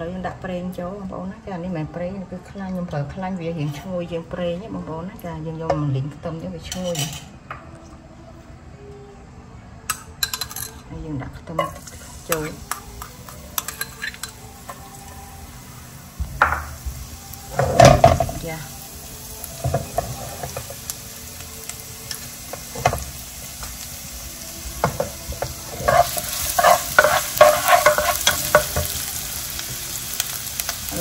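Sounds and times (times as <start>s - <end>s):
garlic frying in hot oil: 11.8s - 31.0s
ladle stirring in pan: 24.8s - 29.0s.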